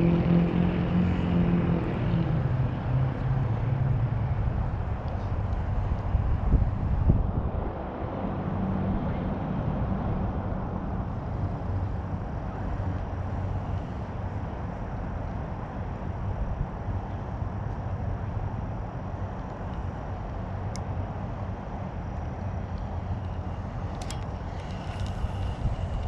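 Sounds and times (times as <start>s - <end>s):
machinery hum and rumble: 0.0s - 26.0s.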